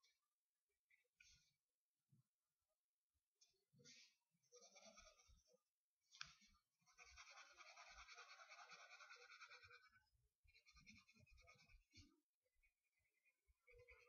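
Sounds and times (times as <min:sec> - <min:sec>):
pencil scribbling on paper: 0:04.5 - 0:05.5, 0:06.8 - 0:12.1.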